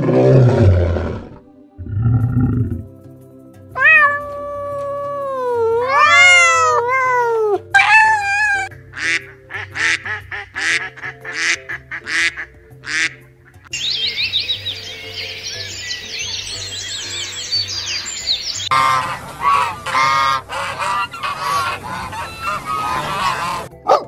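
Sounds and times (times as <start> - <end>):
quiet background music: 0.0 - 24.0
wavering animal call: 3.8 - 8.8, 16.8 - 23.7
ducks quacking: 8.9 - 13.7, 17.2 - 24.0.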